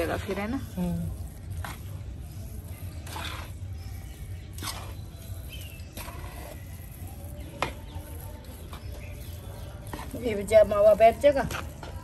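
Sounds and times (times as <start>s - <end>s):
metal spoon scraping metal pan: 2.7s - 12.0s.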